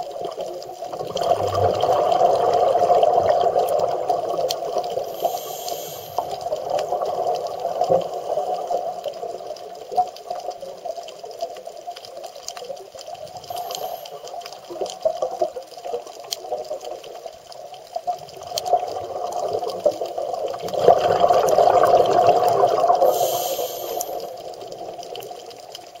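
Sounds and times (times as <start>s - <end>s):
underwater breath bubbling: 0.0s - 9.4s, 13.1s - 14.9s, 18.4s - 25.5s
short hisses: 5.1s - 6.4s, 23.1s - 24.4s.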